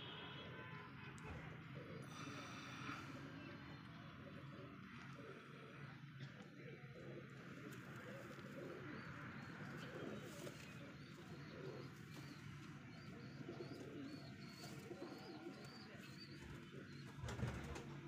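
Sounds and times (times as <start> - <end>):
pigeons cooing: 1.3 - 18.0.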